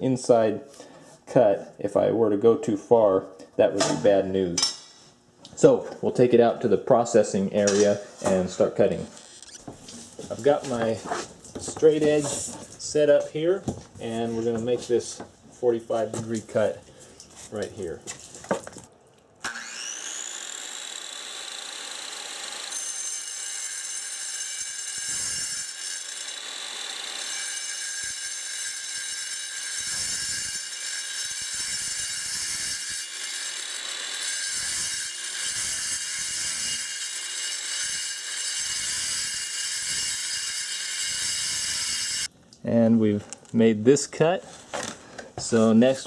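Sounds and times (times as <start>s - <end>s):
circular saw cutting stone: 19.4s - 42.3s.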